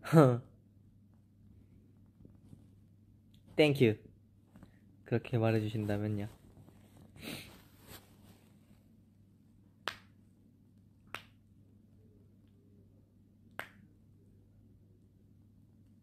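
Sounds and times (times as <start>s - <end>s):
finger snaps: 9.8s - 10.2s, 11.0s - 11.4s, 13.5s - 13.9s.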